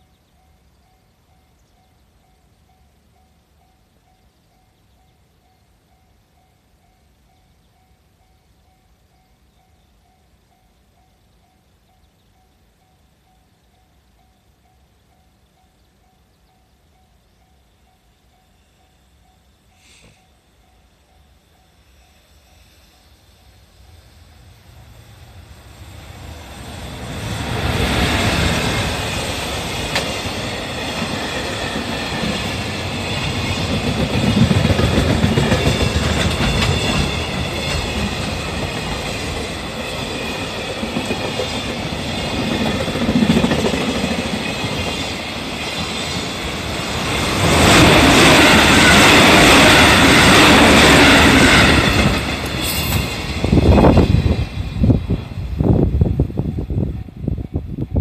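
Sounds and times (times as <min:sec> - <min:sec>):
freight train passing: 0:00.0 - 0:58.0
wagon wheels on rails: 0:26.5 - 0:54.6.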